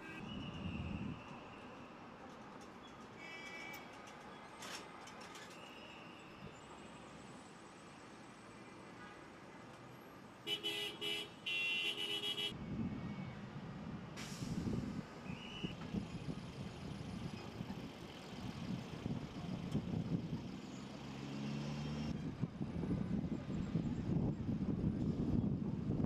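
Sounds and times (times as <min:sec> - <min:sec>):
vehicle horn honking: 0:00.0 - 0:00.2, 0:10.5 - 0:12.6
street traffic rumble: 0:00.0 - 0:26.0.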